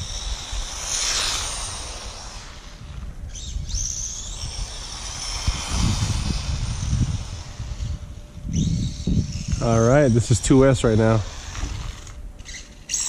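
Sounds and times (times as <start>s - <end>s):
rc car electric motor whining: 0.0s - 13.0s.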